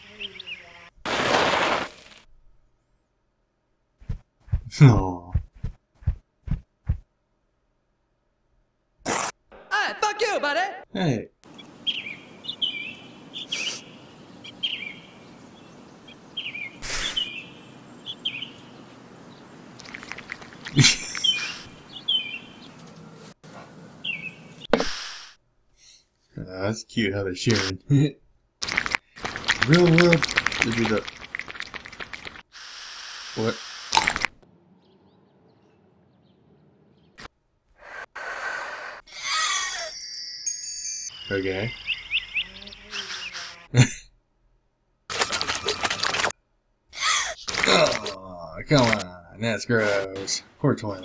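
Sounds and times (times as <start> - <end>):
burst of noise: 1.0 - 2.3
high bird chirps: 11.5 - 18.8, 39.8 - 43.6
breathy gasp-like rush: 37.8 - 39.9
high twinkling tones: 39.1 - 42.1.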